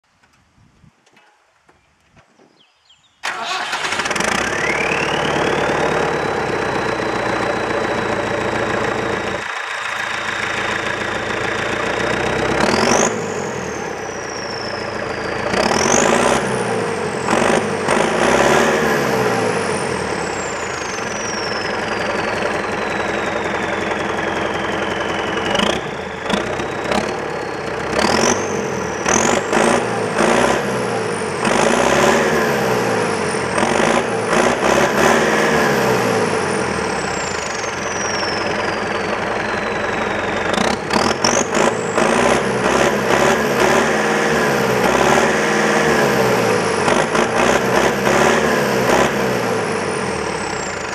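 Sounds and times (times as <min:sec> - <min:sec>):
diesel engine revving: 0:03.2 - 0:50.9
turbo whistle: 0:04.4 - 0:05.7, 0:20.2 - 0:27.6, 0:36.8 - 0:42.4.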